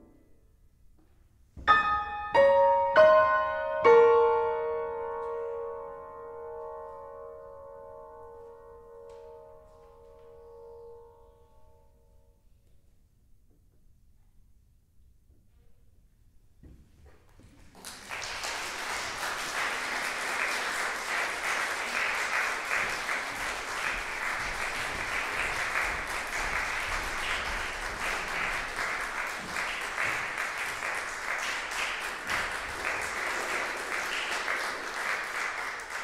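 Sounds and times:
audience applauding: 17.6 - 36.0.

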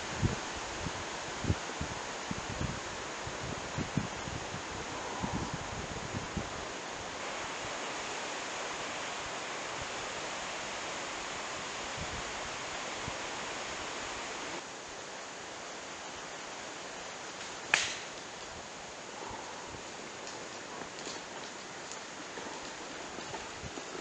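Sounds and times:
wind and rustling leaves: 0.0 - 24.0
golf club striking ball: 17.7 - 18.1.

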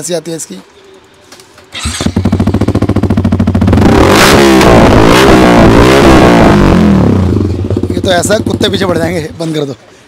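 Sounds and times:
motorcycle engine revving: 1.7 - 9.4.

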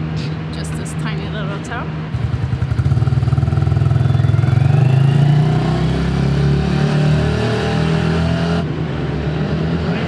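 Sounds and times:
small motorcycle engine revving: 2.2 - 8.7.

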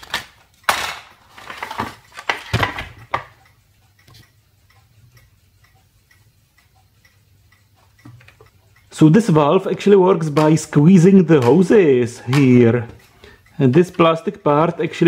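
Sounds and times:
light ratchet clicks: 3.3 - 12.8.

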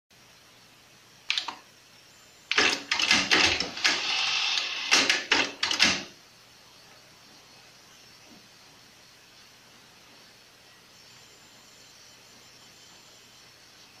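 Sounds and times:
faint tape hiss: 0.1 - 14.0
motor whir: 3.6 - 5.0.

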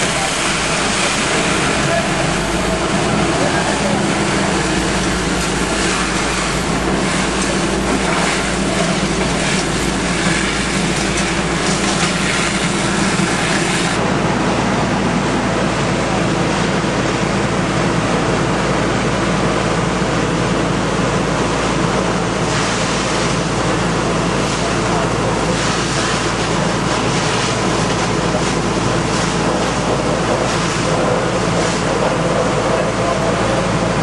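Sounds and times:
water spraying from master stream: 0.0 - 14.0, 22.2 - 33.8
fire engines running under load: 0.0 - 34.0.

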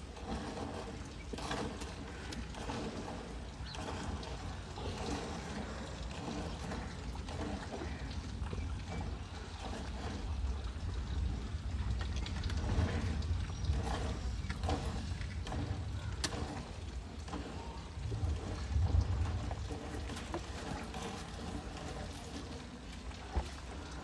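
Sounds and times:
steady low rumble: 10.2 - 22.3.

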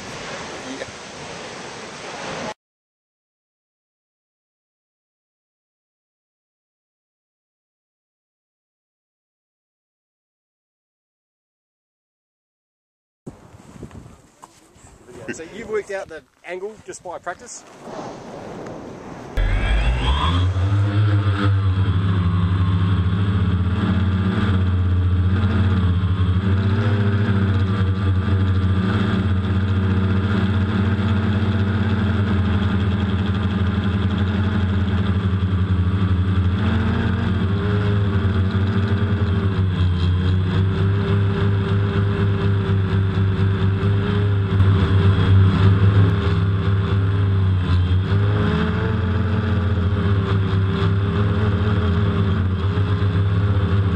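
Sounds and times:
drone propellers buzzing: 19.1 - 30.6.

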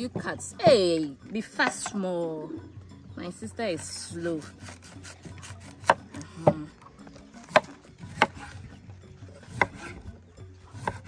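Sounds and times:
kitchen knife chopping food: 4.4 - 6.6, 9.5 - 9.9, 10.7 - 11.0.

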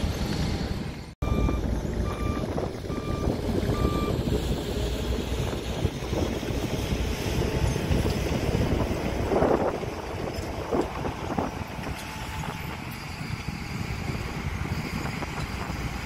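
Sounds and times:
diesel truck engines rumbling: 0.0 - 16.0
truck reverse alarm beeping: 1.2 - 4.3, 7.3 - 8.1, 11.2 - 13.4
wind on microphone: 1.4 - 16.0.

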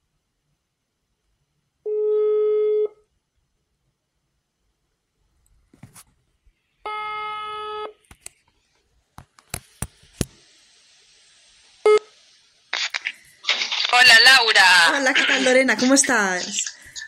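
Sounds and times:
telephone ringback tone: 6.9 - 7.9.

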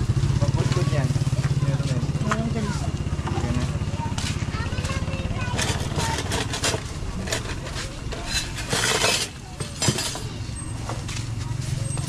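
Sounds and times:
metal utensils clinking on pans: 5.4 - 10.8.

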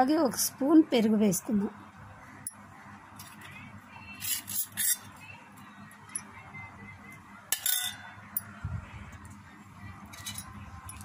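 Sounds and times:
metal spoon scraping steel bowl: 4.1 - 5.2.

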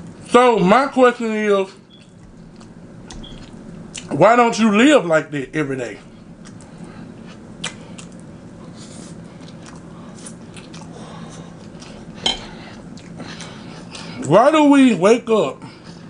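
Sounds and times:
faint low hum: 0.0 - 16.0
man chewing spaghetti: 1.9 - 4.2, 6.0 - 14.2
wet mouth clicks: 7.6 - 8.2.

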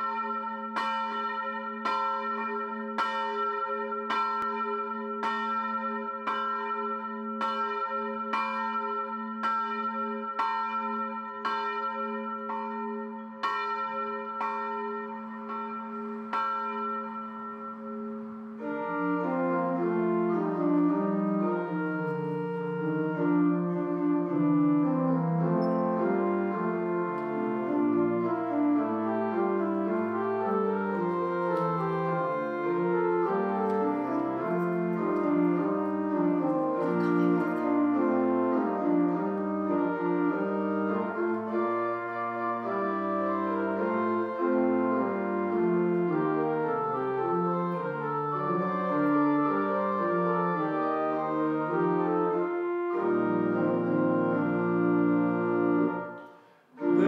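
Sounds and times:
church bell tolling: 0.0 - 45.0
pipe organ chords: 15.4 - 57.0.

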